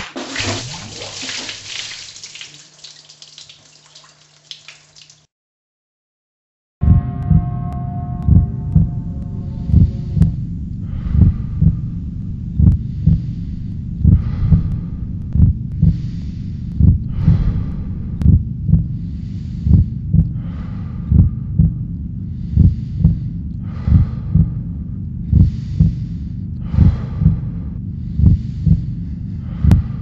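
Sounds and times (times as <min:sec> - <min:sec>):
heartbeat thumps: 0:06.8 - 0:30.0
low drone: 0:06.8 - 0:30.0
heavy breathing: 0:09.4 - 0:30.0.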